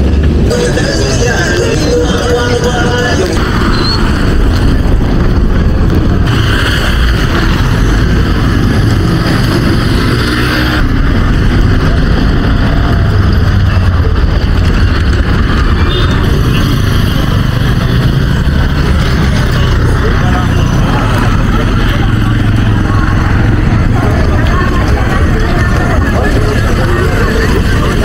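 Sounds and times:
steady low rumble: 0.0 - 16.4
vehicle engines passing: 0.0 - 28.0.

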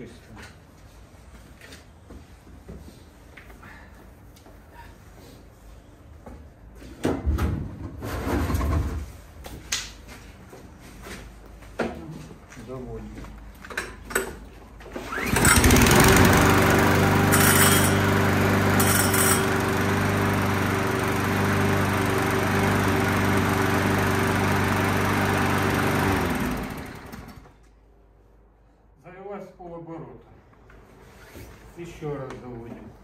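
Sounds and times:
lawn mower engine running: 15.1 - 27.5.

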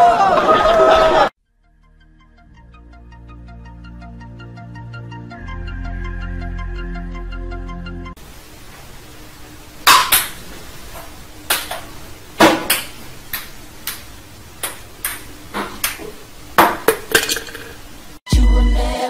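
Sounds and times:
ping-pong ball clicking: 14.6 - 16.0.

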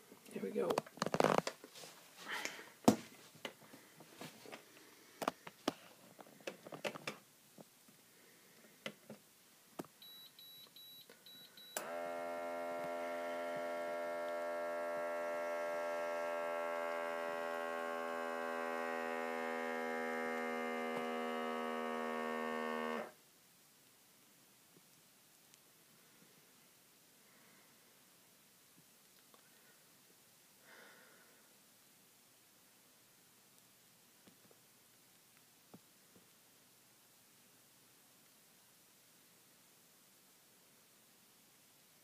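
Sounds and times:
clothing rustling: 0.8 - 6.9
short beeps: 10.0 - 11.8
pump motor buzzing hum: 11.8 - 23.1.

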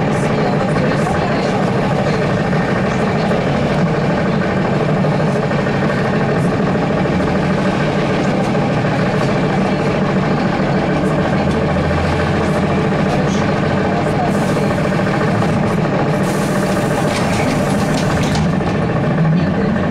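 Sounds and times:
trolleybus electric drive hum: 0.0 - 19.9.

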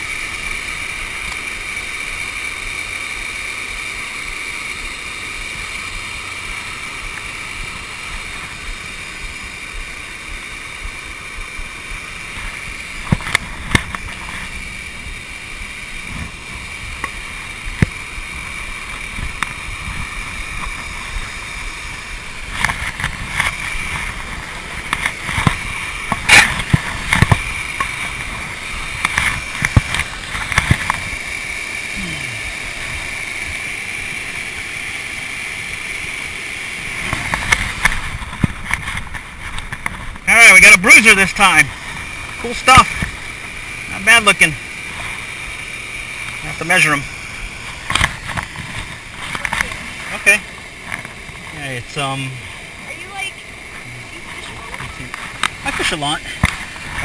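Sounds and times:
waterfall pouring into pond: 0.0 - 57.0
gear knocking near microphone: 22.0 - 31.2.

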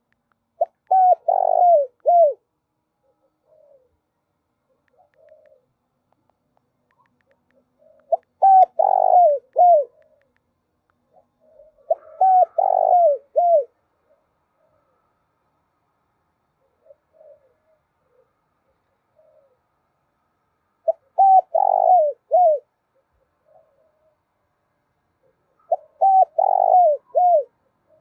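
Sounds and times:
dove cooing: 0.6 - 4.0, 4.7 - 5.8, 6.9 - 10.3, 11.1 - 15.1, 16.6 - 19.7, 20.8 - 24.3, 25.2 - 28.0.

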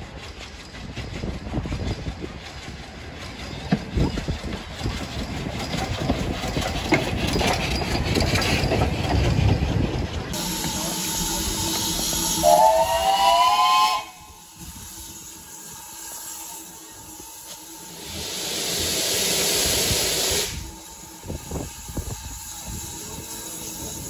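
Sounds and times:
rail clatter: 0.0 - 24.0
steam locomotive running past: 0.0 - 24.0
steam whistle: 10.4 - 14.6
steam hiss: 10.4 - 24.0.

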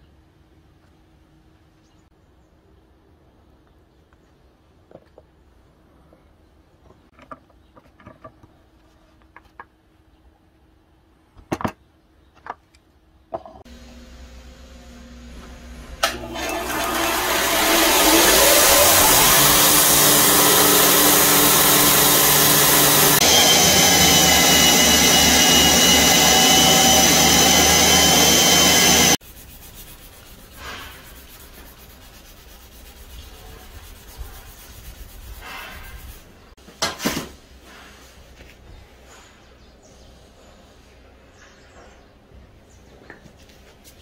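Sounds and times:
belt grinder grinding with high whine: 13.7 - 29.2.

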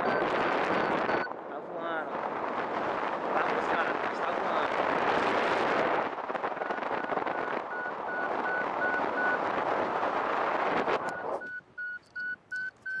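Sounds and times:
variometer beeping in short tones: 0.0 - 1.3, 7.0 - 9.4, 11.0 - 13.0
wind on microphone: 0.0 - 13.0.

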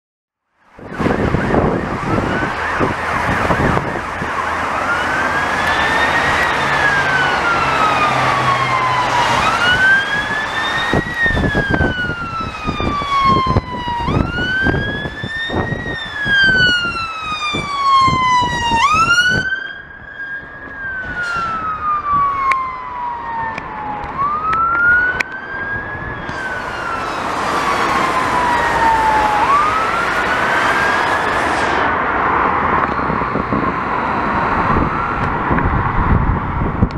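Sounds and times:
fire engine siren wailing: 0.6 - 36.9
traffic passing on wet road: 0.6 - 36.9.

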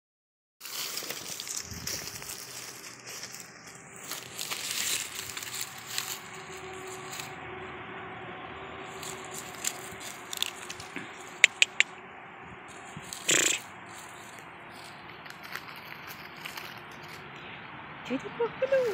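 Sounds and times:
dry leaves rustling and crunching: 0.6 - 7.4, 8.8 - 11.7, 12.7 - 17.4, 18.6 - 18.9
quick sharp clicks: 11.4 - 11.9.

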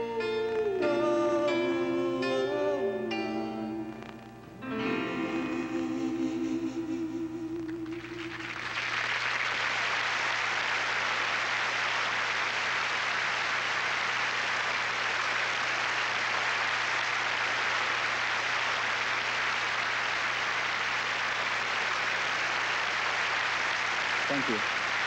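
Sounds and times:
held sung note with vibrato: 0.0 - 8.5
audience applauding: 6.0 - 25.0.

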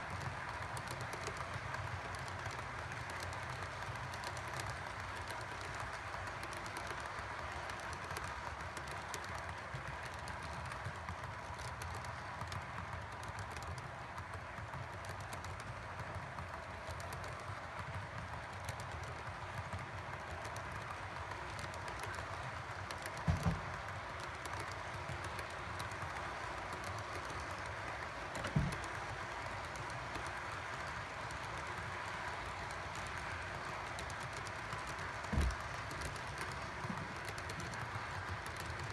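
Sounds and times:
model train cars rattling on track: 0.0 - 38.9.

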